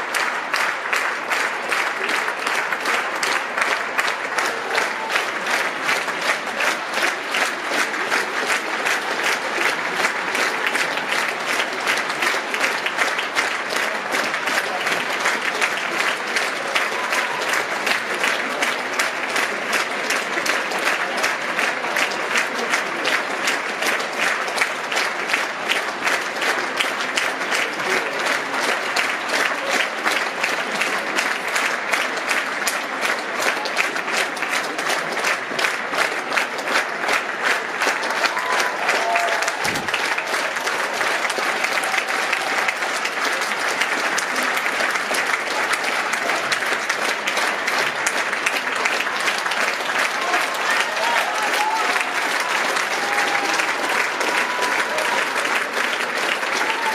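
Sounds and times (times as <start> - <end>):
audience applauding: 0.0 - 56.9.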